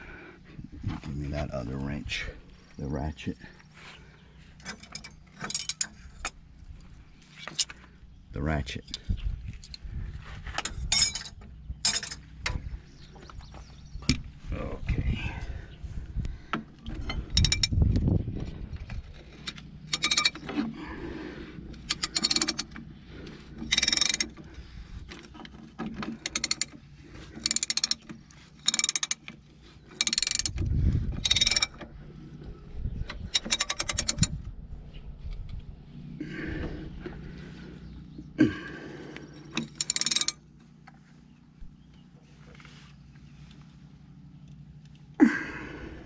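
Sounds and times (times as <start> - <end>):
ratchet wrench clicking: 17.3 - 17.8, 19.9 - 20.4, 21.9 - 22.8, 23.6 - 24.4, 26.2 - 26.8, 27.4 - 29.3, 29.9 - 31.8, 33.2 - 34.4, 39.5 - 40.4.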